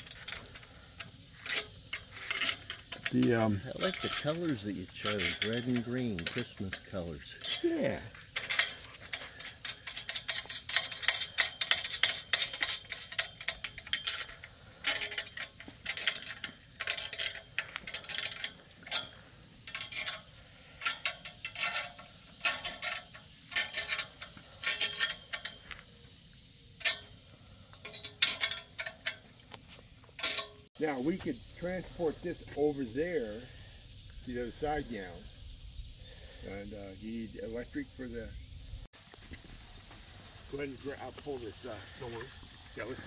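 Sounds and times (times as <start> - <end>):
ratchet wrench clicking: 0.0 - 29.3, 30.1 - 30.7.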